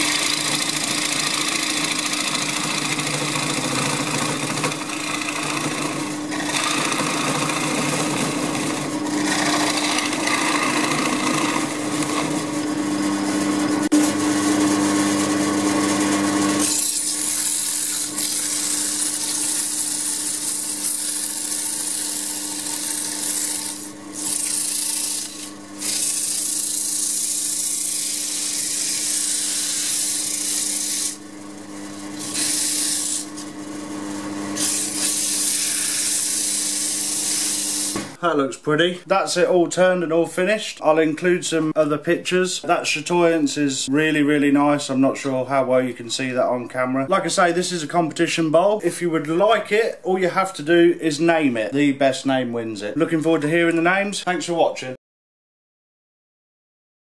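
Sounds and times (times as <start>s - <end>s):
spinning wood being worked: 0.0s - 12.7s, 16.6s - 31.2s
wood lathe motor hum: 0.0s - 38.2s
sandpaper hissing on spinning wood: 16.6s - 31.2s, 32.2s - 33.4s, 34.6s - 38.0s.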